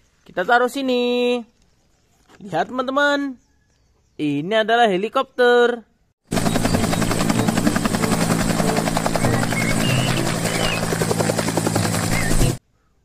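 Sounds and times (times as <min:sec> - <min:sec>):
helicopter engine drone: 0:06.3 - 0:12.6
helicopter rotor chopping: 0:06.3 - 0:12.6.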